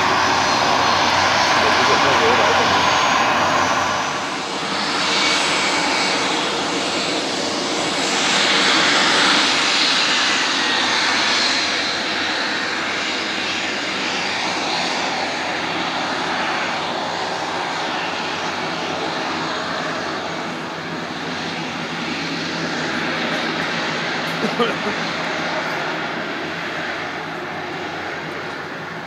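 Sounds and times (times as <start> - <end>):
jet engines whining at taxi power: 0.0 - 29.0.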